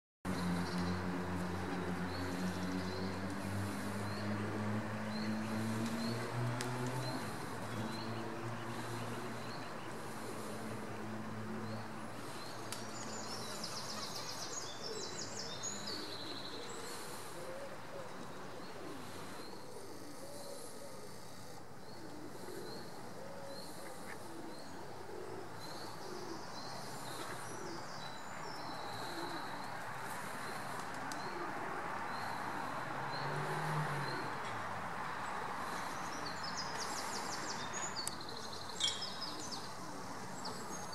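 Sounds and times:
pigeons cooing: 15.8s - 34.4s.

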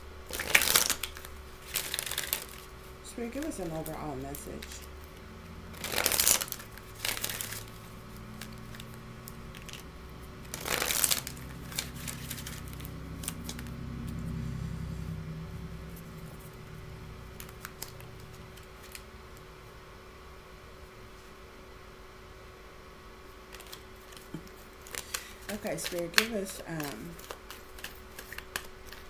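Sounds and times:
faint low hum: 0.0s - 29.0s
cards riffle shuffling: 0.3s - 4.9s, 5.8s - 13.8s, 23.5s - 29.0s.

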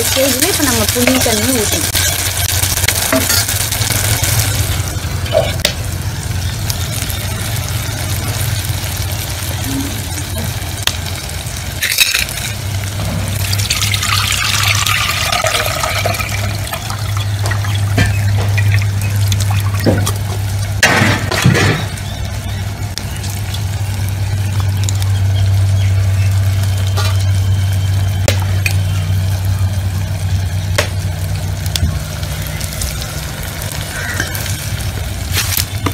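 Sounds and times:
low hum: 0.0s - 35.9s
liquid pouring into a steel pot: 13.4s - 20.2s.

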